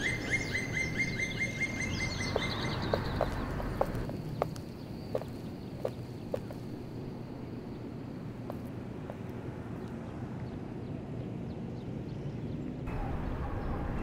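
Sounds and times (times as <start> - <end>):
outdoor background noise: 0.0 - 14.0
footsteps on stone pavement: 2.0 - 6.9, 8.4 - 9.3.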